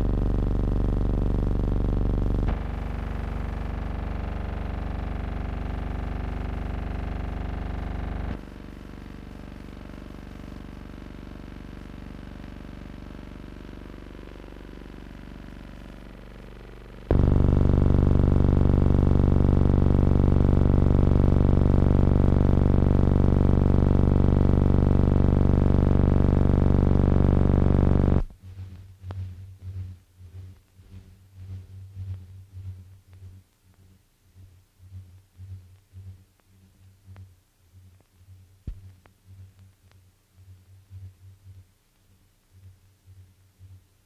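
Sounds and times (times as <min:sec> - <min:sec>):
low throbbing pulses: 0:00.0 - 0:08.4, 0:14.4 - 0:28.3
steady low hum: 0:00.0 - 0:44.0.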